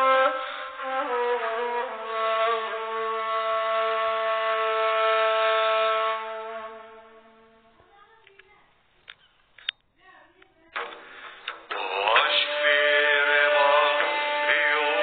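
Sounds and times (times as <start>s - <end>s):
music long held note: 0.0s - 7.7s.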